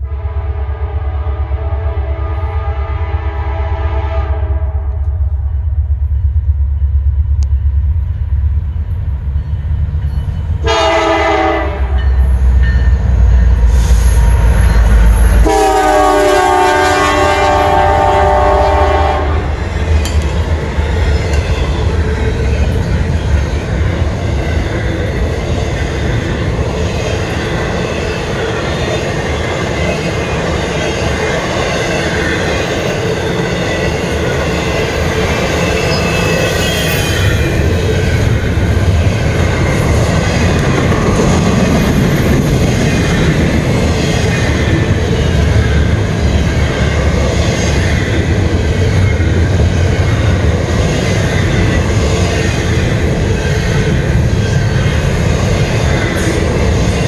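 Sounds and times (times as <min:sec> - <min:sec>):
locomotive horn blasts: 0:00.0 - 0:05.1, 0:10.6 - 0:12.0, 0:15.4 - 0:19.6
diesel locomotive engine rumble: 0:00.0 - 0:57.0.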